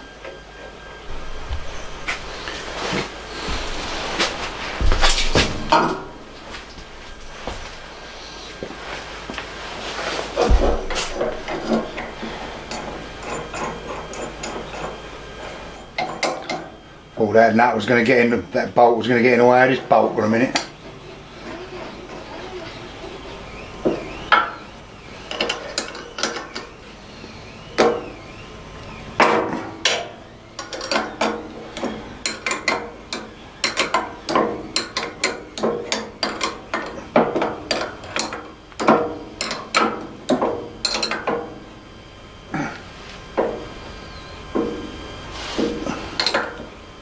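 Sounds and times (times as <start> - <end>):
spanner clinking on metal: 10.9 - 15.0, 30.6 - 41.4.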